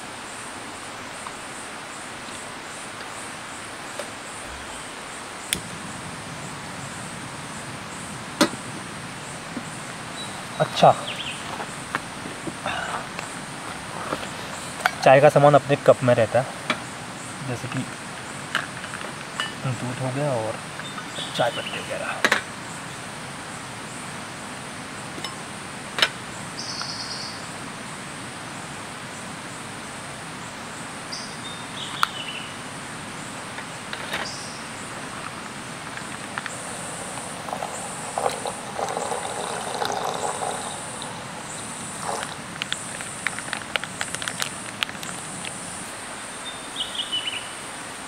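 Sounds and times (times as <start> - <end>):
insects trilling: 0.0 - 48.0
bird chirps: 10.1 - 11.6, 26.6 - 27.4, 31.1 - 32.6, 34.2 - 35.0, 46.2 - 47.6
metal kettle clinks: 36.0 - 42.4.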